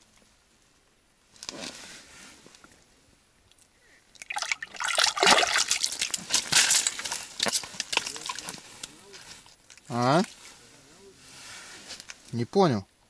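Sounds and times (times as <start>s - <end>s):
water splashing: 4.1s - 7.0s
slush crunching: 4.3s - 9.4s.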